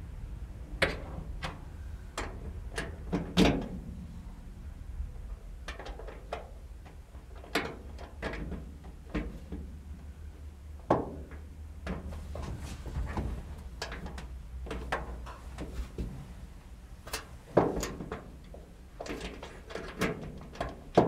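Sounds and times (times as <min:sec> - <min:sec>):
metal clicks and knocks: 0:05.6 - 0:09.6, 0:17.1 - 0:21.0.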